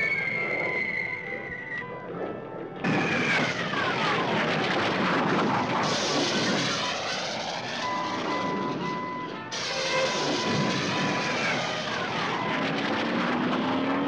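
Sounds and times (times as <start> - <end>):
whistle gliding down in pitch: 0.0 - 2.2, 7.0 - 12.7
cartoon jet engine roar: 0.0 - 14.0.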